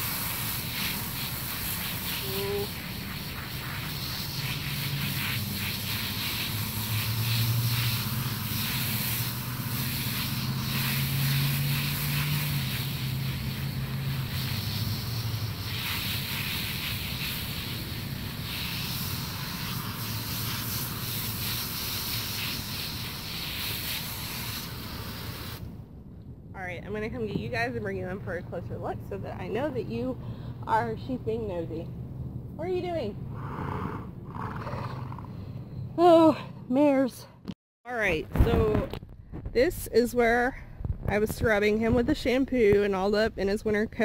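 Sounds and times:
hose nozzle spraying water: 0:00.0 - 0:25.7.

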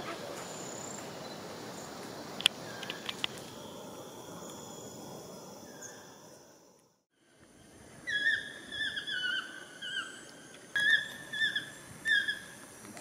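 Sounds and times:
toucan yelping calls: 0:08.0 - 0:12.6.

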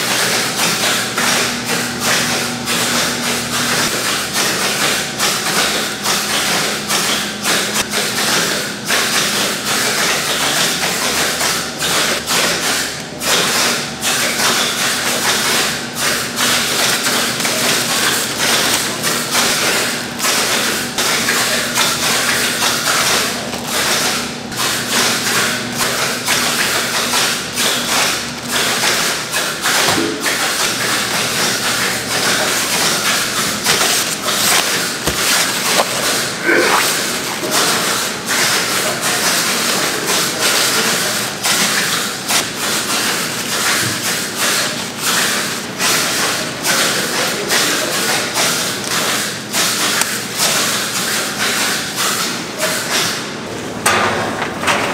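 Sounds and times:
machinery noise: 0:25.3 - 0:48.0.

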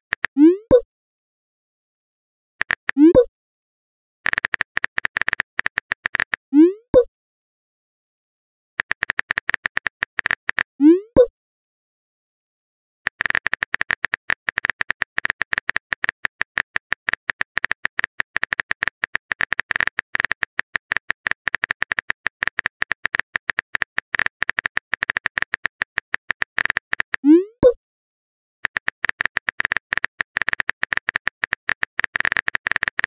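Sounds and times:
phone keyboard tapping clicks: 0:02.6 - 0:03.2, 0:04.3 - 0:06.4, 0:08.8 - 0:11.3, 0:13.1 - 0:27.8, 0:28.6 - 0:33.0.

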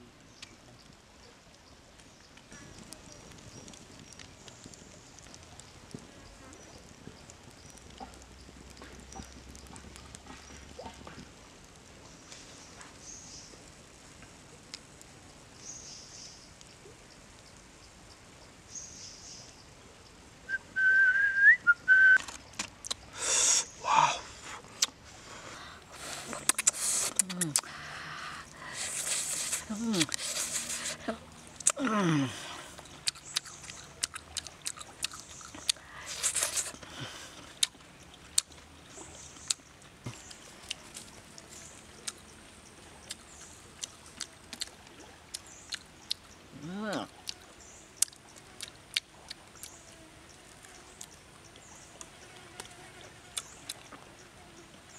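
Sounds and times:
faint hiss: 0:00.0 - 0:34.0, 0:34.9 - 0:54.9
soft ticks: 0:01.6 - 0:12.4
person whistling: 0:20.5 - 0:22.2
mouth smacks: 0:22.0 - 0:25.0, 0:25.9 - 0:32.2, 0:32.8 - 0:37.8
person chewing crunchy food: 0:26.0 - 0:31.9, 0:32.7 - 0:38.6.

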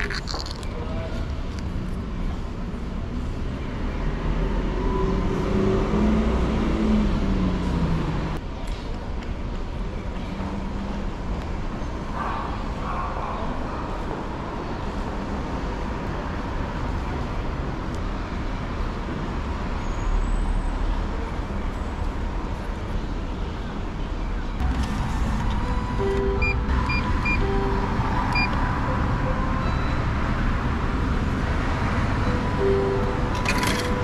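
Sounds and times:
street traffic noise: 0:00.0 - 0:34.0
short electronic tones: 0:25.6 - 0:30.4.

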